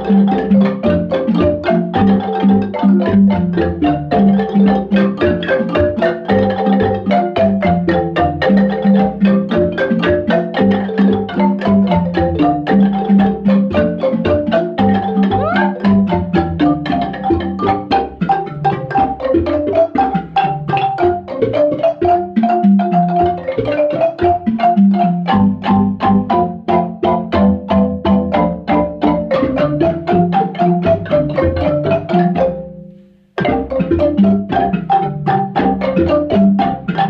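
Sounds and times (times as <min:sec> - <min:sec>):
low bass marimba notes: 0:00.0 - 0:37.0
marimba ensemble playing: 0:00.0 - 0:37.0.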